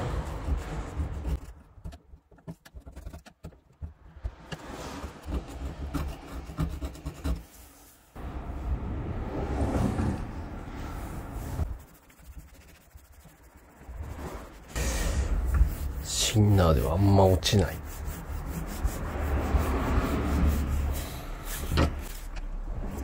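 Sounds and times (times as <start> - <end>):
metal scraper scraping paint: 0.0 - 7.5
cloth rubbing over metal panel: 10.9 - 22.4.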